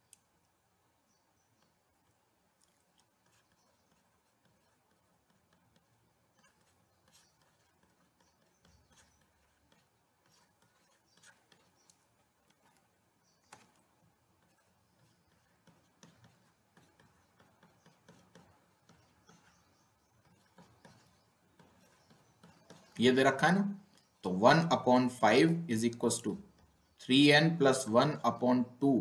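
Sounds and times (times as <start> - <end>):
stylus tapping on pen tablet: 13.4 - 23.0.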